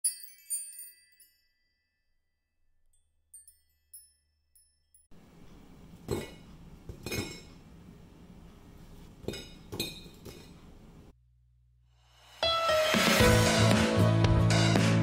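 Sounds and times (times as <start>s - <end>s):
music: 12.0s - 15.0s.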